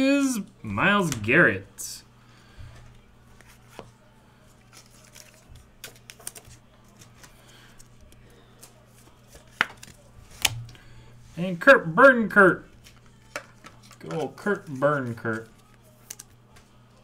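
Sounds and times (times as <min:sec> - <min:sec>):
steady low hum: 0:09.9 - 0:17.0.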